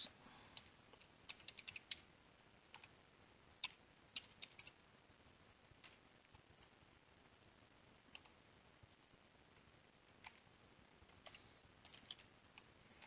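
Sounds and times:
keyboard typing: 0:00.6 - 0:02.1, 0:02.7 - 0:03.0, 0:03.6 - 0:04.8, 0:05.8 - 0:06.7, 0:08.1 - 0:08.4, 0:10.2 - 0:10.5, 0:11.1 - 0:13.0.

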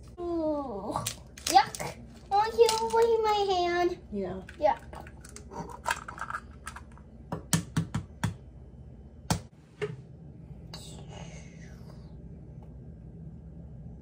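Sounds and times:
eggshells cracking on bowl rim: 0:04.4 - 0:07.0.

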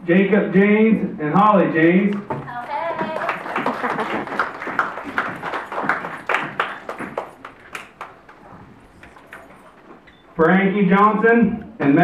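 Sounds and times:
people clapping: 0:02.5 - 0:09.1.

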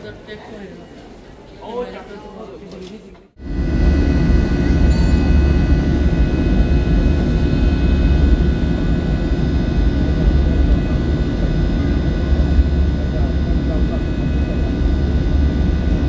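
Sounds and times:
jet engines rumbling in cabin: 0:03.4 - 0:16.0.

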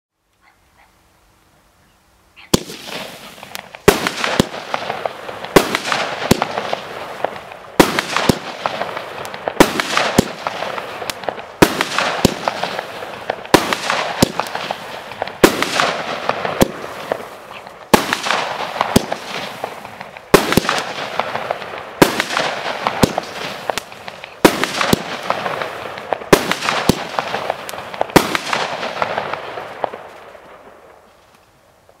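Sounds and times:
firework bangs and crackle: 0:02.4 - 0:32.0.

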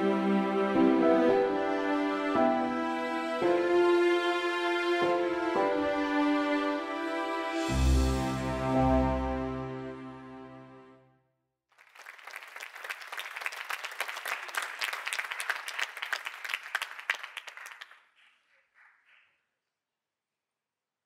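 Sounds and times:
audience applauding: 0:11.7 - 0:19.3.

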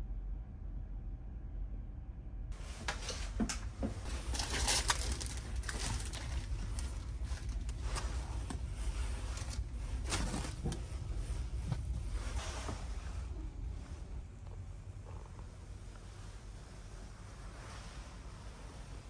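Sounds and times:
steady low hum: 0:00.0 - 0:19.0
plastic packaging crinkling: 0:04.1 - 0:08.2.

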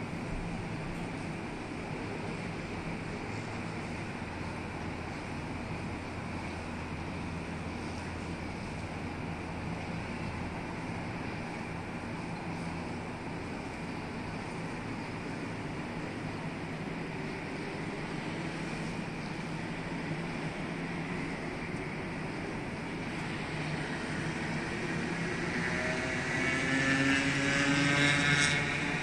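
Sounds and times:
road traffic noise: 0:00.0 - 0:29.0
vehicle engine drone: 0:00.0 - 0:29.0.

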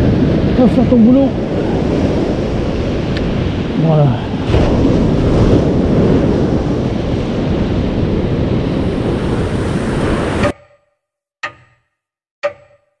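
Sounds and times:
surf breaking on beach: 0:00.0 - 0:10.5.

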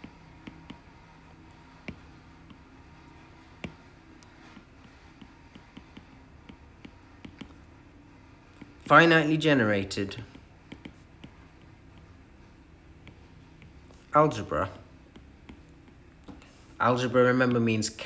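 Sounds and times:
low steady hum: 0:00.0 - 0:18.0
stylus tapping on glass screen: 0:04.6 - 0:07.6.

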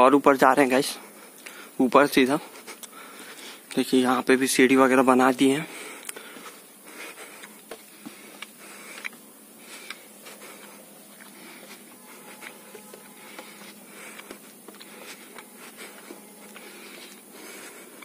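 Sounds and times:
steady hiss: 0:00.0 - 0:18.0
footsteps on concrete stairs: 0:06.1 - 0:18.0.

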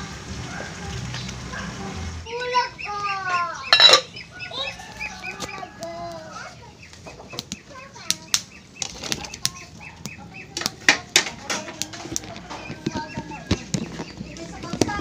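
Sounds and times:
fowl clucking: 0:02.6 - 0:14.1.

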